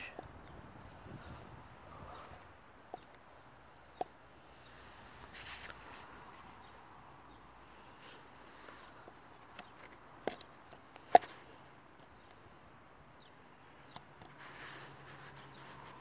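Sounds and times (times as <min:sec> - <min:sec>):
low outdoor hiss: 0:00.0 - 0:16.0
hand handling paper cup: 0:14.2 - 0:16.0.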